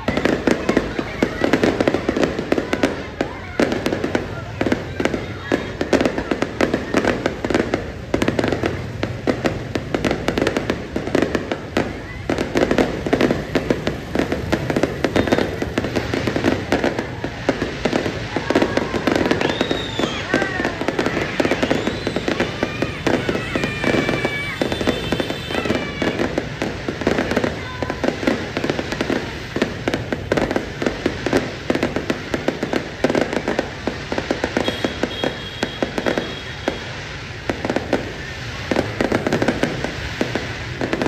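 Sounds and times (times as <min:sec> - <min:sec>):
fireworks bangs and crackles: 0:00.0 - 0:41.0.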